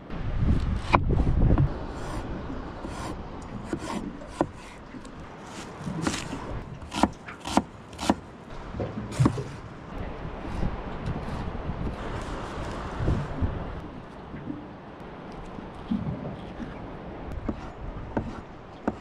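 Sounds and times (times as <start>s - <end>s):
knife scraping board: 1.9s - 4.8s, 5.4s - 8.2s, 17.5s - 19.0s.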